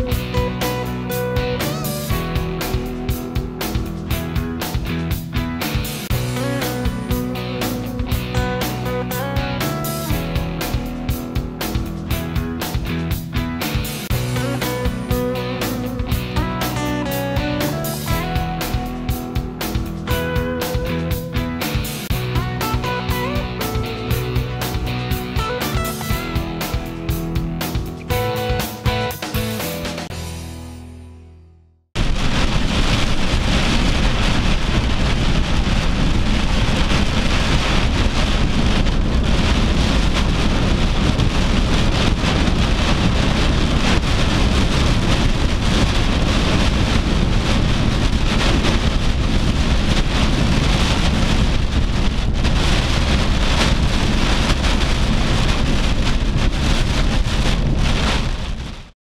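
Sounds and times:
heavy rain on vehicle roof: 0:32.0 - 0:59.0.

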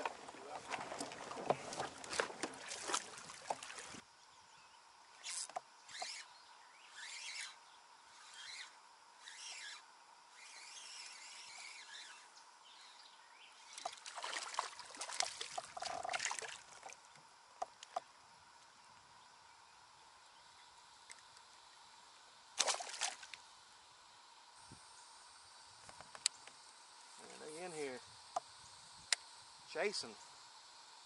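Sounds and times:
paddle splashing in water: 0:00.0 - 0:04.0, 0:14.0 - 0:17.0, 0:22.6 - 0:23.3.

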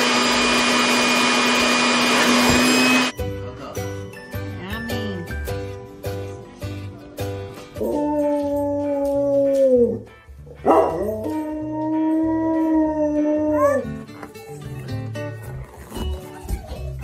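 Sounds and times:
dog howling: 0:07.8 - 0:10.1, 0:10.7 - 0:14.0.

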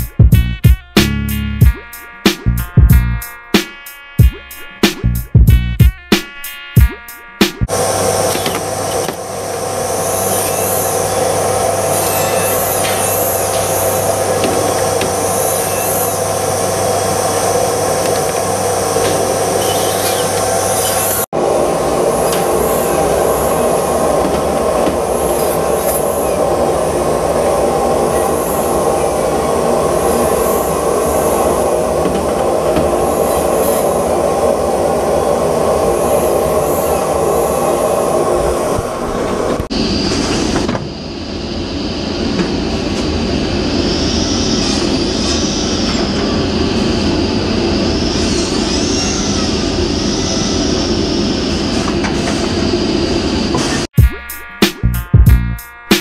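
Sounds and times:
high wavering whine: 0:05.8 - 0:50.0
industrial saw and conveyor din: 0:06.3 - 0:53.9.

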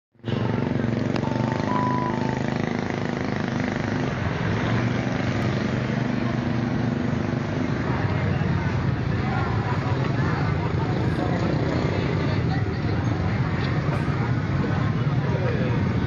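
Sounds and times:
vehicle engine running: 0:00.2 - 0:16.0
short high tone: 0:01.2 - 0:02.6.

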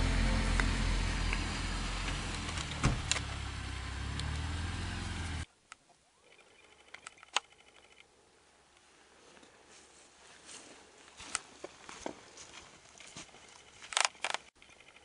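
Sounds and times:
vehicle engine driving: 0:00.0 - 0:05.5
small clicks: 0:05.7 - 0:08.1, 0:13.7 - 0:15.0.

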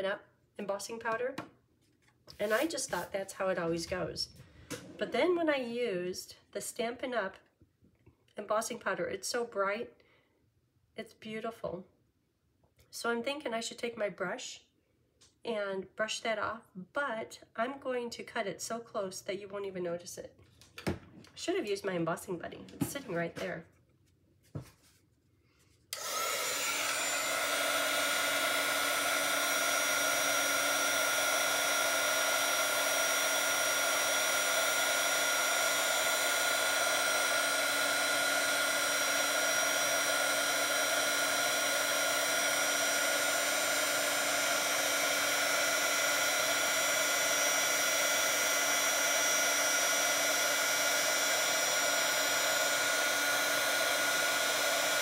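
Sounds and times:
heat tool fan whirring: 0:25.9 - 0:55.0.

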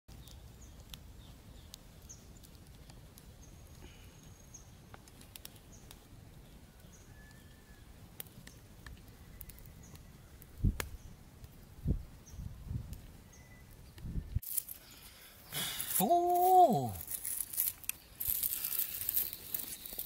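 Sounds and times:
birds chirping: 0:00.1 - 0:04.9
wood fire crackling: 0:00.1 - 0:20.0.

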